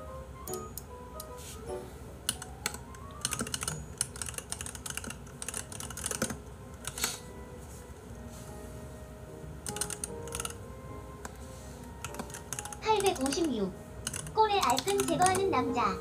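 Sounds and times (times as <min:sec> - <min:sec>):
soft piano music: 0:00.0 - 0:16.0
fast keyboard typing: 0:02.3 - 0:07.1, 0:09.6 - 0:10.6, 0:12.0 - 0:15.6.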